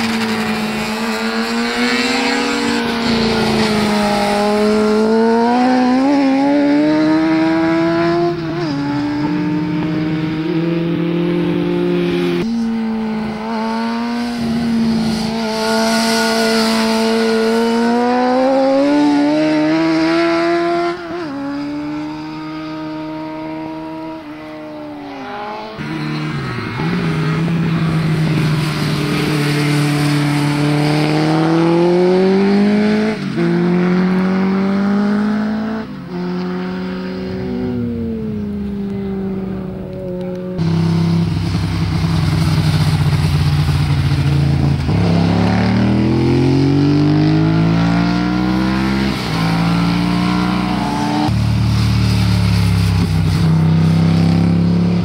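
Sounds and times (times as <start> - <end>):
motorcycle engines revving: 0.0 - 55.0.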